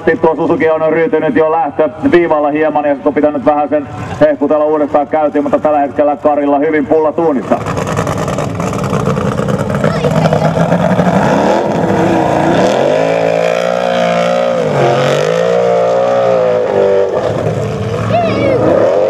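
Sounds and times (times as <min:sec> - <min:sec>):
buggy engine revving hard: 0:07.4 - 0:19.0.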